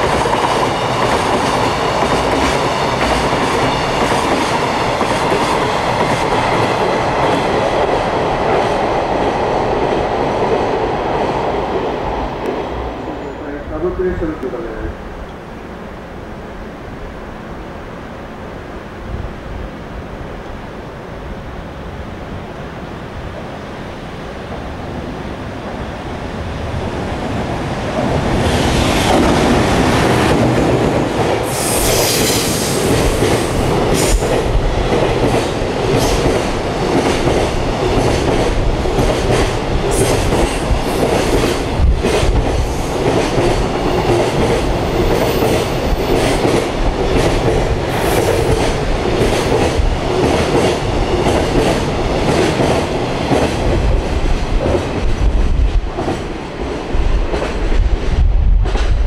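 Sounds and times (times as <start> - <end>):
train rumble: 24.0 - 59.0
train wheels clacking over rail joints: 28.4 - 56.4.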